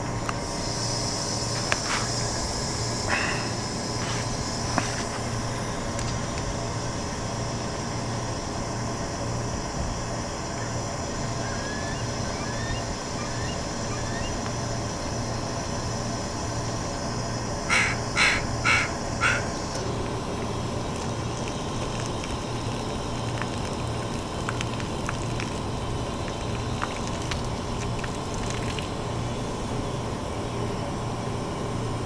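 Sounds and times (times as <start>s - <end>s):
low mechanical hum: 0.0s - 32.0s
crow cawing: 17.7s - 19.6s.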